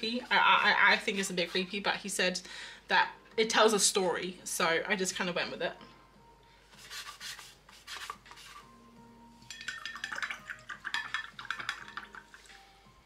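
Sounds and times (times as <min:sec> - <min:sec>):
brush on paper: 0:06.7 - 0:08.7
brush clinking in glass jar: 0:09.4 - 0:12.6.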